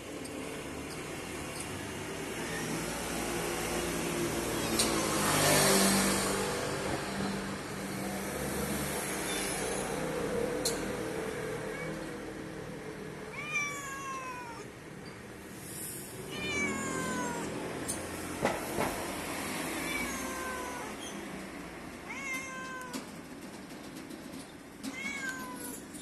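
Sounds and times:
cat meowing: 2.2s - 2.9s, 11.7s - 12.2s, 13.3s - 14.7s, 16.3s - 17.7s, 19.8s - 21.0s, 22.0s - 23.1s, 24.9s - 25.8s.

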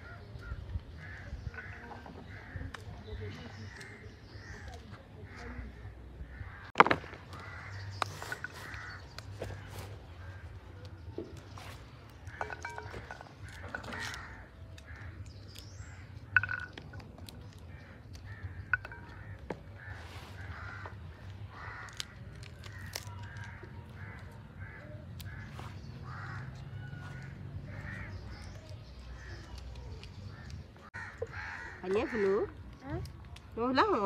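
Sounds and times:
pea pods snapping open: 21.1s - 25.6s.

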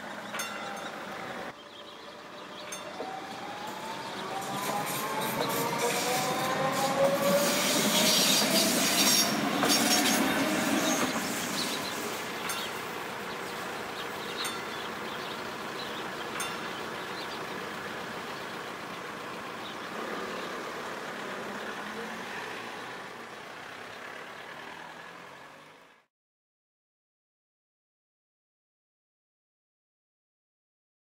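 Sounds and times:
train motors whining: 0.0s - 23.4s
train wheels clattering over rails: 2.6s - 19.7s.

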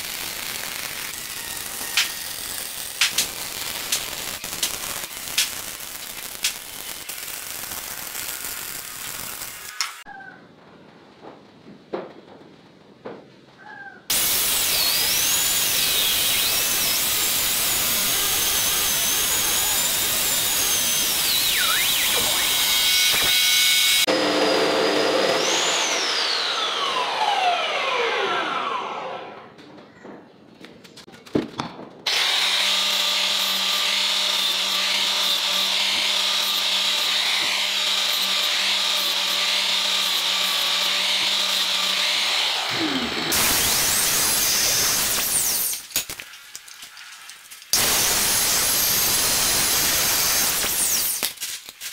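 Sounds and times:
power tool running: 0.0s - 5.6s, 14.1s - 29.4s, 32.1s - 45.8s, 47.8s - 51.3s
chop saw cutting steel: 0.0s - 10.0s, 14.1s - 29.2s, 32.1s - 46.2s, 47.7s - 51.4s
motor winding down whine: 14.7s - 29.5s, 42.2s - 45.4s.

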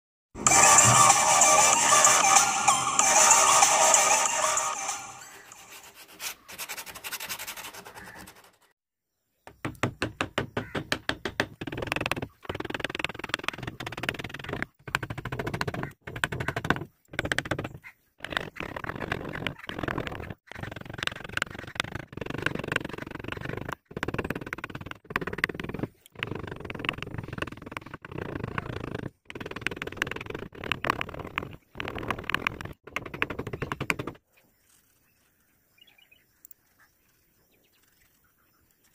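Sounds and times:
chisel cutting wood: 5.6s - 8.7s, 9.8s - 34.2s.

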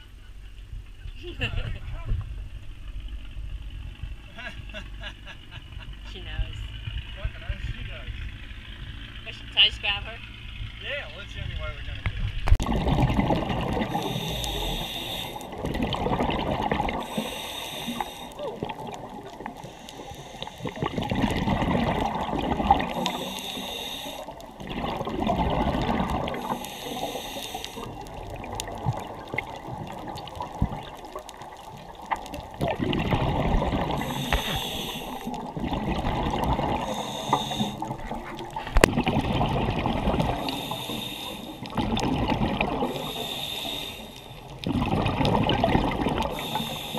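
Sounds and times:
exhaled bubbles gurgling: 12.4s - 46.9s
regulator inhale hiss: 13.9s - 15.6s, 17.0s - 18.4s, 19.5s - 20.8s, 22.9s - 24.4s, 26.3s - 28.0s, 34.0s - 35.4s, 36.8s - 37.9s, 40.3s - 41.8s, 42.8s - 44.4s, 46.3s - 46.9s.

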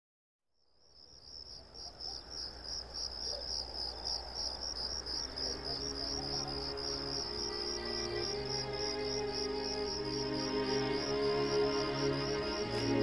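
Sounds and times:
insects chirping: 0.6s - 13.0s
soft sustained music notes: 5.0s - 13.0s.

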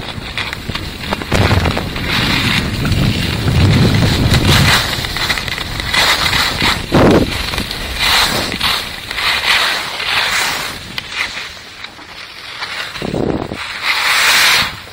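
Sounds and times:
wind buffeting microphone: 0.0s - 9.2s, 13.0s - 13.6s
skis scraping over packed snow: 0.0s - 14.9s.

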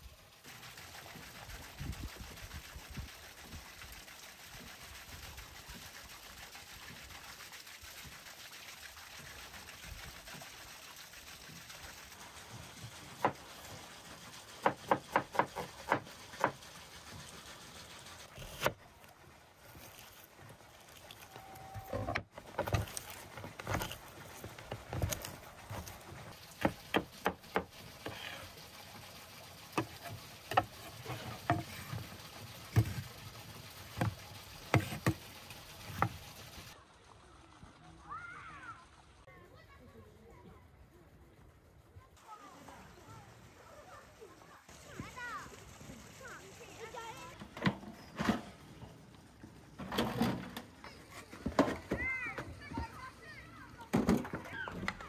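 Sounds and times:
cleaver chopping on wooden board: 14.6s - 16.6s.

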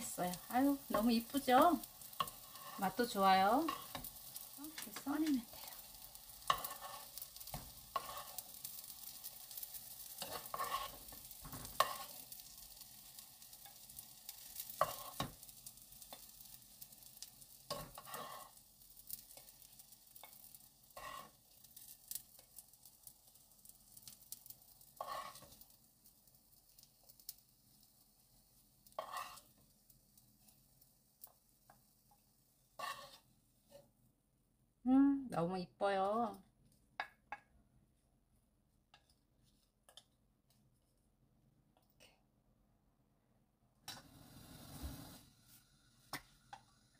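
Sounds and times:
patties sizzling in oil: 0.0s - 34.2s, 34.9s - 41.1s, 43.8s - 46.9s
utensil scraping a pan: 0.3s - 12.4s, 14.6s - 15.4s, 17.6s - 22.5s, 24.9s - 25.7s, 28.8s - 29.7s, 32.8s - 33.9s.

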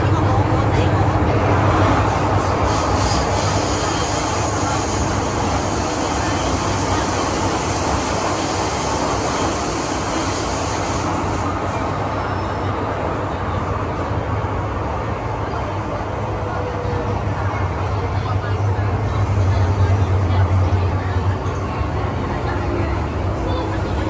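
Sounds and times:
train wheels rumbling on rail: 0.0s - 24.0s
hiss: 2.5s - 11.8s.

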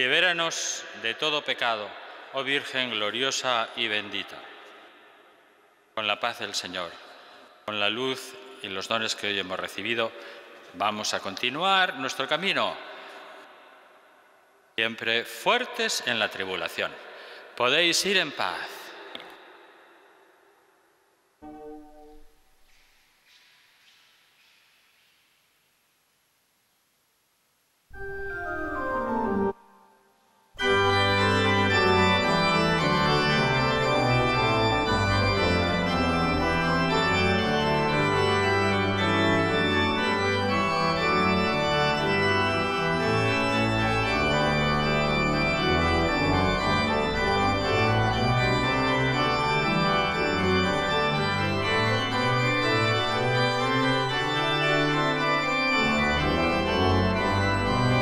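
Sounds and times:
organ playing held chords: 30.6s - 58.0s.

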